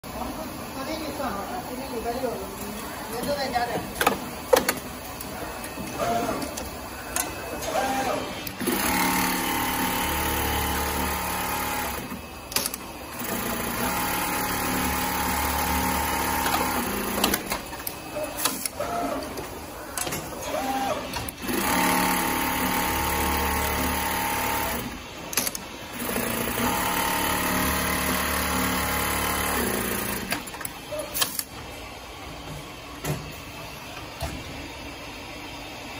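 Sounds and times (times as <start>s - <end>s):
sewing machine stitching: 7.6s - 12.1s, 20.4s - 24.9s.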